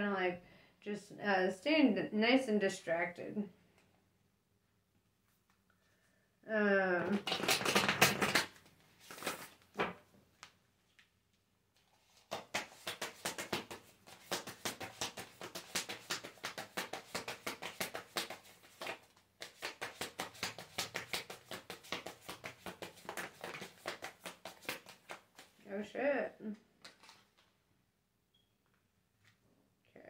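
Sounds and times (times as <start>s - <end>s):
cards being shuffled: 7.0s - 10.6s, 11.8s - 25.6s, 26.8s - 27.5s.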